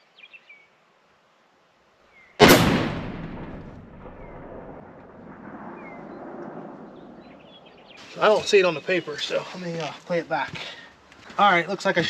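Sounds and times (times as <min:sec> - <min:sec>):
rifle shot with echo: 0:02.4 - 0:07.9.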